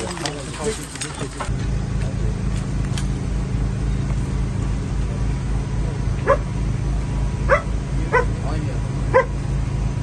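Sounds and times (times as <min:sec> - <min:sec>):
low engine drone: 0:00.0 - 0:10.0
dog barking: 0:06.2 - 0:06.5, 0:07.5 - 0:08.4, 0:09.1 - 0:09.4.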